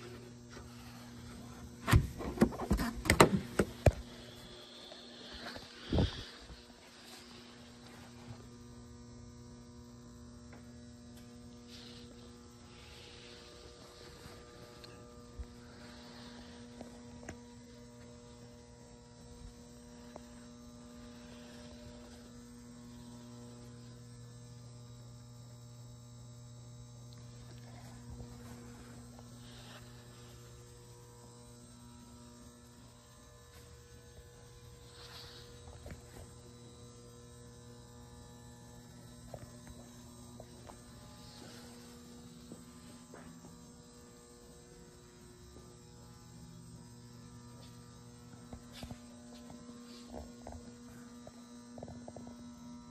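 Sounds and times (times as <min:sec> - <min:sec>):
low electrical hum: 0:00.0 - 0:52.9
faint brushing sounds: 0:04.2 - 0:08.5, 0:11.6 - 0:15.0, 0:27.7 - 0:30.6, 0:34.8 - 0:36.2.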